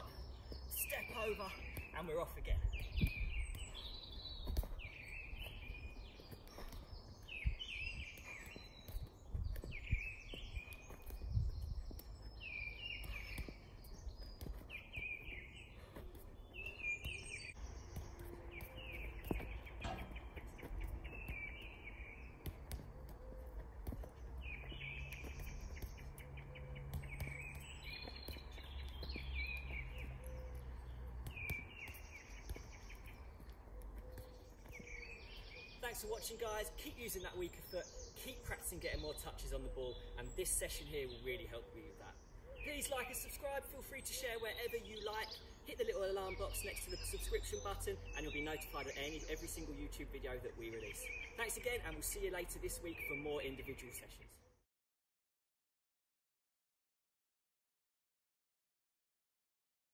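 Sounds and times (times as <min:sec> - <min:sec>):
birds chirping and singing: 0:00.0 - 0:54.6
soft thuds of football kicks: 0:04.3 - 0:12.1, 0:15.9 - 0:26.2, 0:26.8 - 0:35.6.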